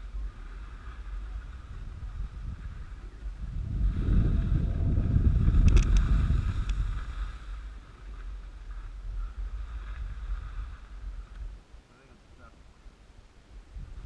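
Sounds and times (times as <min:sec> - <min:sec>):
skis sliding on snow: 0:00.0 - 0:04.6, 0:05.2 - 0:11.3
wind buffeting microphone: 0:00.0 - 0:11.6, 0:13.2 - 0:14.0.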